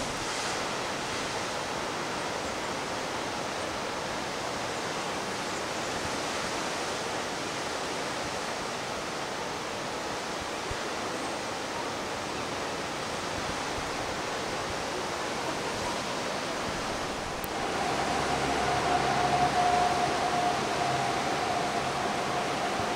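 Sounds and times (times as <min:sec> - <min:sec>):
distant ocean surf on rocks: 0:00.0 - 0:22.9
steady tone: 0:16.8 - 0:22.9.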